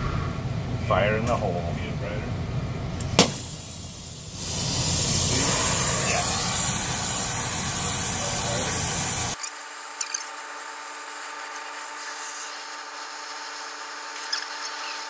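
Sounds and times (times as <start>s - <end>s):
torch flame hissing: 3.0s - 9.4s, 11.1s - 15.0s.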